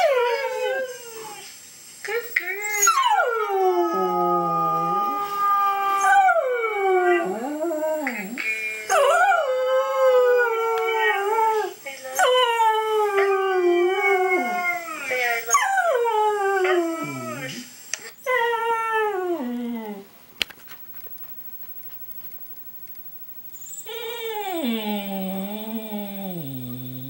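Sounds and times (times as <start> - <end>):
dog howling: 2.6 - 17.6, 23.8 - 27.0.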